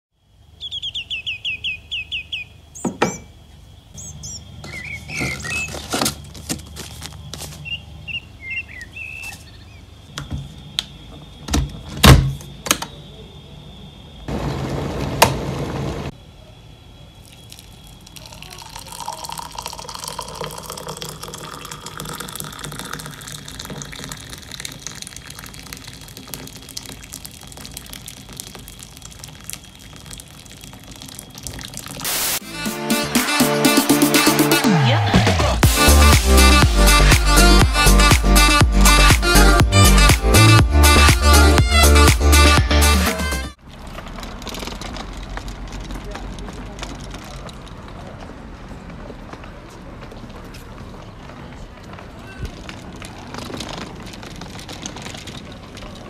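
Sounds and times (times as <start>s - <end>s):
water poured into mug: 17.2s - 32.4s
water rushing from tap: 17.2s - 32.4s
electric kettle heating: 17.6s - 26.6s.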